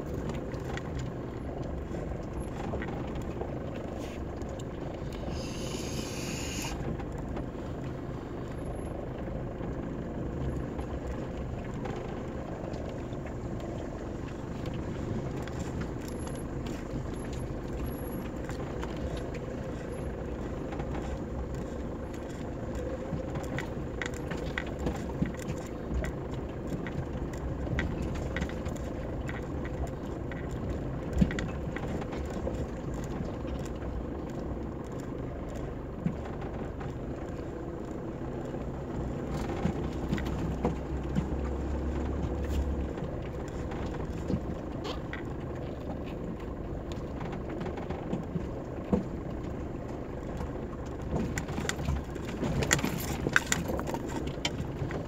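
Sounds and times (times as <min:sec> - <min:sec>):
vehicle rattling over rocks: 0:00.0 - 0:05.4, 0:06.0 - 0:55.0
car engine drone: 0:00.0 - 0:55.0.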